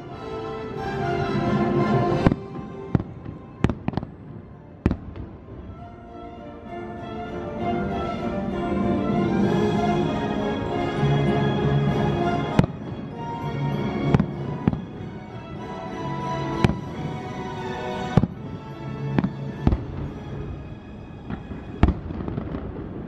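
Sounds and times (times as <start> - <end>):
music: 0.0 - 23.0
fireworks bursting: 2.1 - 5.9, 14.1 - 20.5, 21.2 - 23.0.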